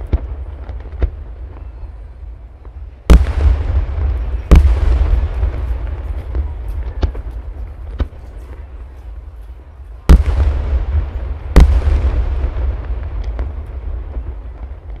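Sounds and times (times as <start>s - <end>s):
firework crack: 0.0s - 15.0s
firework shells booming: 3.1s - 8.7s, 10.1s - 15.0s.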